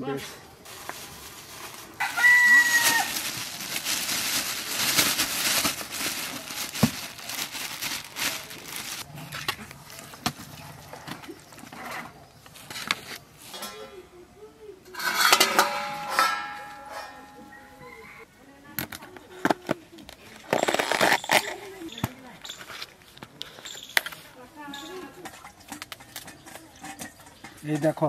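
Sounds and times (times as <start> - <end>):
plastic bag crinkling: 0.6 - 9.1, 20.1 - 23.6.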